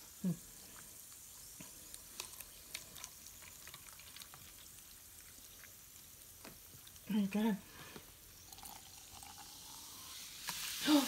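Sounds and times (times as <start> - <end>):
fizzing bubbles popping: 8.4 - 11.0.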